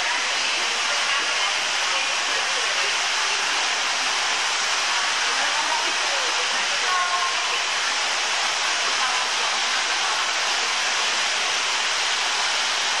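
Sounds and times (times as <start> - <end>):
rushing water hiss: 0.0 - 13.0.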